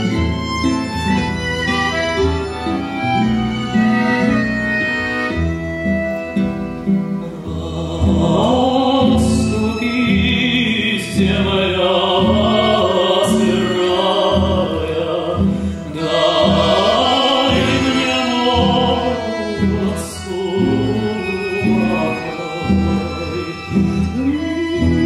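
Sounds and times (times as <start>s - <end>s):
button accordion chords: 0.0s - 25.0s
man singing folk song: 7.2s - 25.0s.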